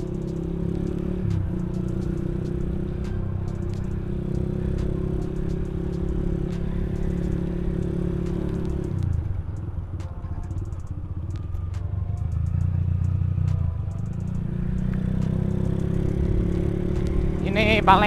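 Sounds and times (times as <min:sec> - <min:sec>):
light rattles and ticks: 0:00.0 - 0:01.0, 0:08.2 - 0:16.1
motorcycle engine running: 0:00.0 - 0:18.0.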